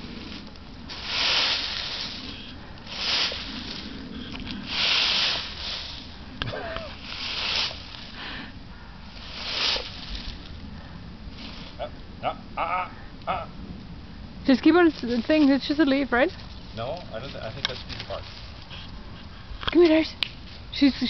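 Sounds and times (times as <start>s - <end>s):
broom sweeping leaves: 0.0s - 8.5s, 9.1s - 10.6s, 11.3s - 11.8s, 18.0s - 18.6s.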